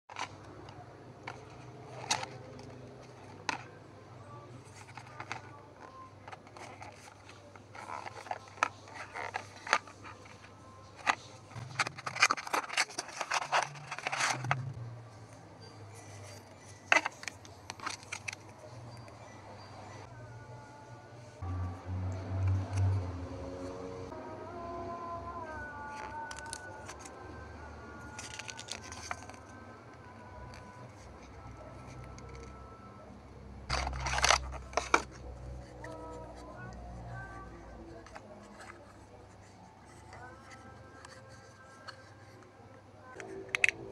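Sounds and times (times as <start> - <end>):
cardboard scraping and crinkling: 4.6 - 14.7, 33.7 - 36.5.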